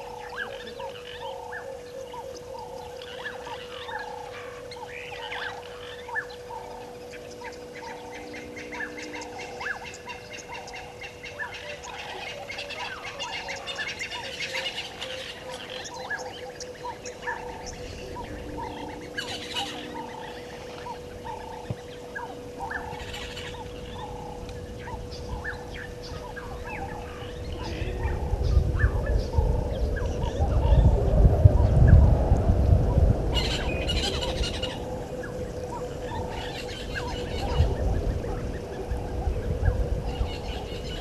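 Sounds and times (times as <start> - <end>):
wild birds chirping and squawking: 0.0 - 41.0
low rushing noise: 16.0 - 41.0.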